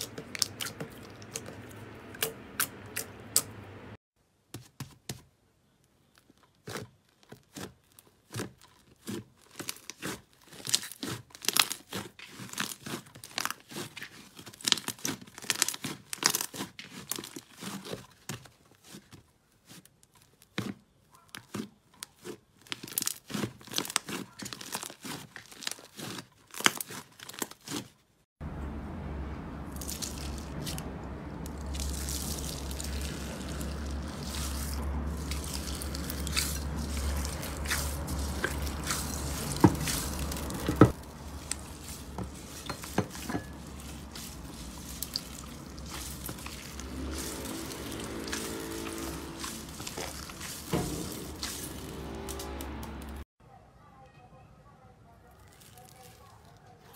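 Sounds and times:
slime popping and crackling: 7.4 - 18.0, 21.4 - 27.8, 31.4 - 51.9.

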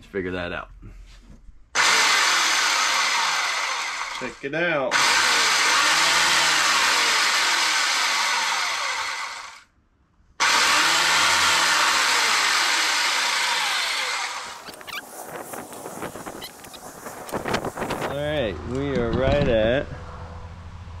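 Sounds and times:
circular saw running: 1.8 - 9.6, 10.4 - 14.9.

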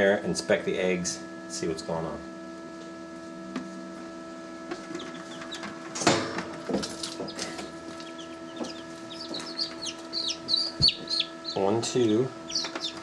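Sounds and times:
chicks peeping: 4.8 - 5.9, 6.6 - 13.0.

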